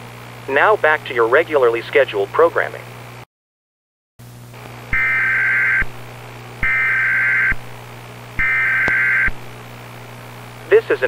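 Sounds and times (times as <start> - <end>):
low steady hum: 4.2 - 11.0
buzzing digital data tones: 4.9 - 5.9, 6.6 - 7.6, 8.4 - 9.4.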